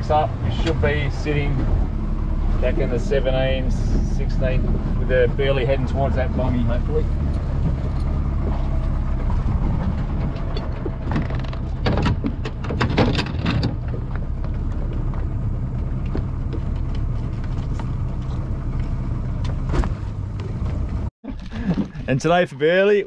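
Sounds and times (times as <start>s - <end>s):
outboard motor idling: 0.0s - 12.9s.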